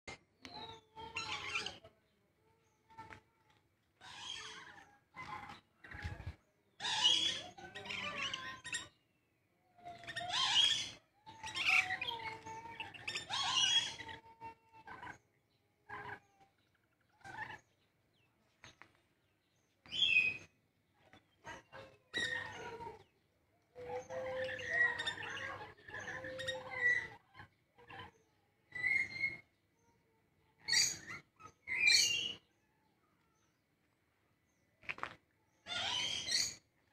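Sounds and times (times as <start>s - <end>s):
parrots screeching and chirping: 0.6s - 1.9s, 4.0s - 6.1s, 6.8s - 9.0s, 9.8s - 15.2s, 15.9s - 16.4s, 17.1s - 17.6s, 19.9s - 20.5s, 21.4s - 23.1s, 23.8s - 29.5s, 30.7s - 32.4s, 35.6s - 36.7s.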